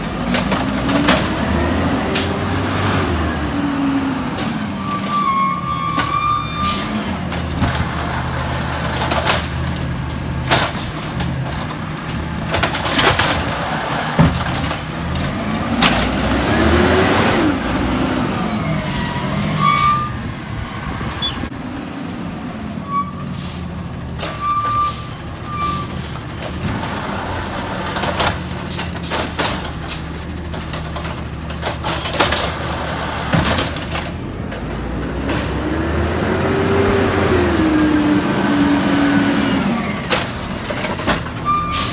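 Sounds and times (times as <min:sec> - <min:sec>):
cart and lifting arm clanking: 0:23.5 - 0:35.7, 0:39.2 - 0:41.9.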